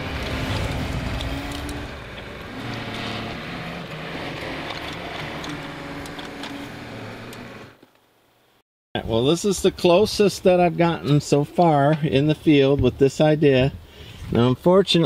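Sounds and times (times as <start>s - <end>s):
tractor diesel engine running: 0.0s - 7.8s.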